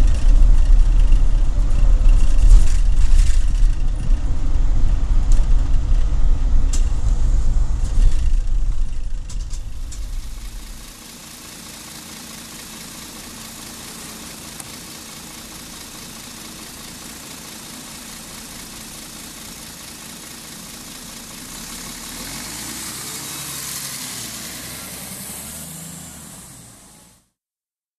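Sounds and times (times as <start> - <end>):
bus diesel engine running: 0.0 - 27.3
hiss: 9.6 - 27.2.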